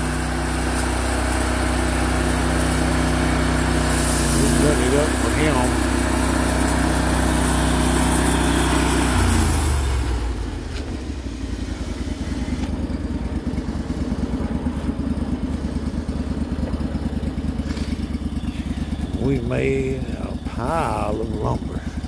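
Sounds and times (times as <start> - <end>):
sawmill engine running and idling: 0.0 - 22.0
saw blade spinning with hiss: 0.2 - 9.5.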